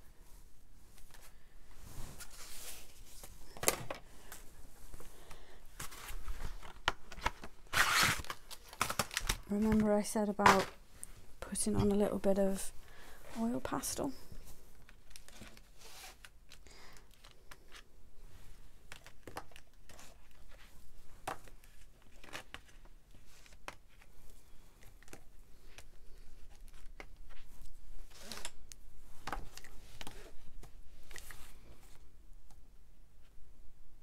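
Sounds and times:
rustling: 0:00.1 - 0:11.4.

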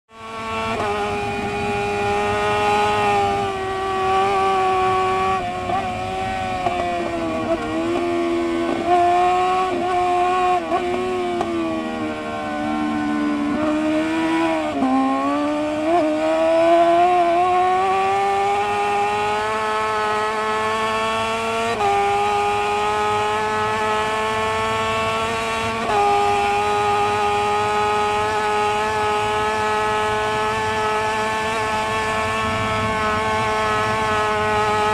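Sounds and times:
motorcycle engine at racing speed: 0:00.1 - 0:34.9
wind noise: 0:24.7 - 0:34.9.

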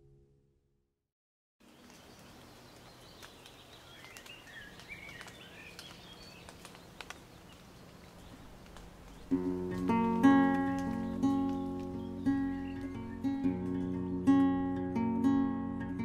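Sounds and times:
bird chirps: 0:01.6 - 0:13.6
faint outdoor ambience: 0:01.6 - 0:16.0
acoustic guitar strumming chords: 0:09.3 - 0:16.0.

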